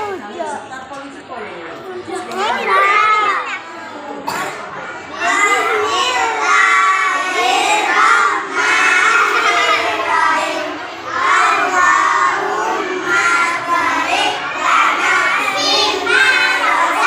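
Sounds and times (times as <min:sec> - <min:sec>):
children chanting in unison: 0:05.1 - 0:17.0.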